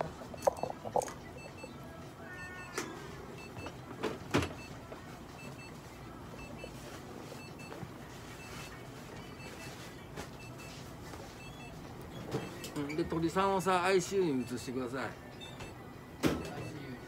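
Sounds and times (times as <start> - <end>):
high double beeps: 0.0 - 1.8.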